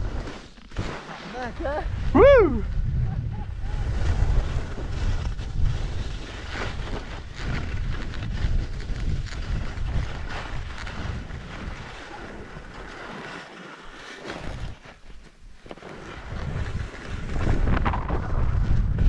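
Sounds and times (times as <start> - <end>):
skis sliding on snow: 0.0 - 2.8, 3.5 - 19.0
wind buffeting microphone: 1.4 - 13.0, 16.1 - 19.0.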